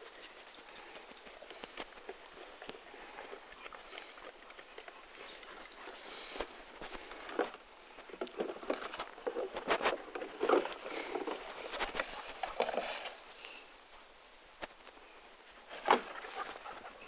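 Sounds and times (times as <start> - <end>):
dog paws pattering and clicking: 0.0 - 13.2.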